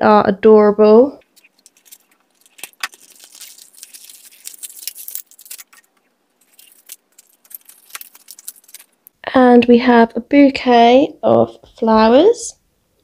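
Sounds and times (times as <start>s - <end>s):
packaging crinkling and clicking: 1.2s - 9.2s.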